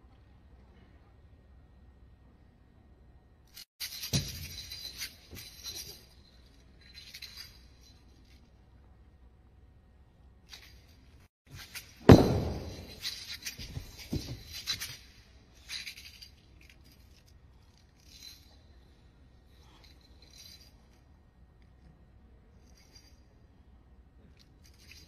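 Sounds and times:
metallic clinking and rattling: 3.5 - 8.6, 10.4 - 21.9, 22.5 - 23.4, 24.2 - 25.0
spear hitting carpet: 11.8 - 14.6.

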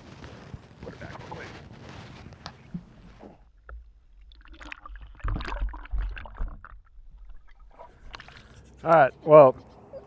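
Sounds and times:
water sloshing and splashing: 1.9 - 8.8.

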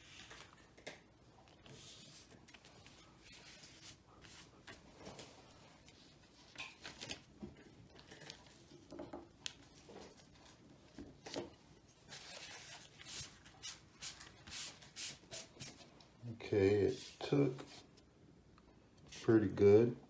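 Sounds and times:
paper rustling: 0.0 - 0.8, 1.6 - 7.4, 9.6 - 15.9.

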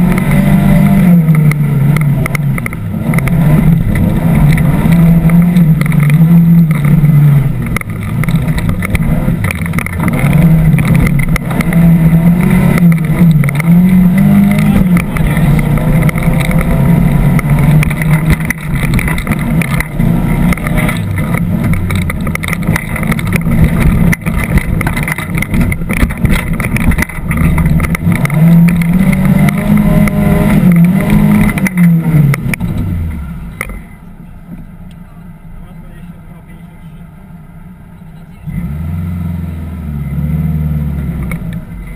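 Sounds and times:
knocks and rattles: 0.0 - 32.9
off-road engine revving: 0.0 - 41.9.

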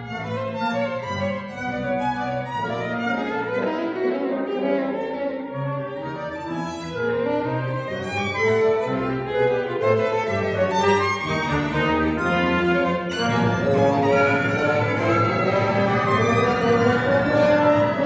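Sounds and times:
solo violin playing: 0.0 - 18.0
wind instruments: 0.0 - 18.0
double basses: 8.1 - 18.0.

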